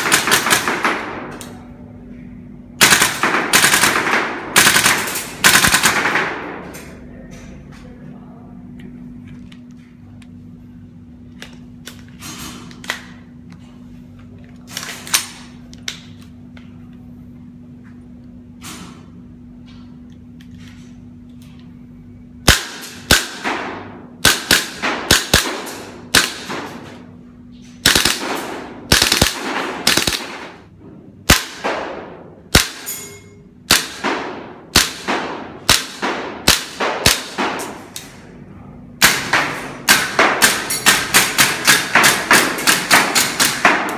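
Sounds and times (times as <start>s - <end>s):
airsoft rifle shots: 0.0s - 1.3s, 2.8s - 6.6s, 22.4s - 26.8s, 27.8s - 30.6s, 31.3s - 32.9s, 33.7s - 37.8s, 39.0s - 43.9s.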